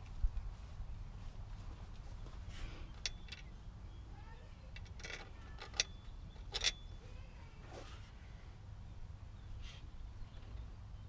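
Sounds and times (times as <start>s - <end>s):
light metallic clinks: 2.9s - 3.6s, 4.7s - 7.0s.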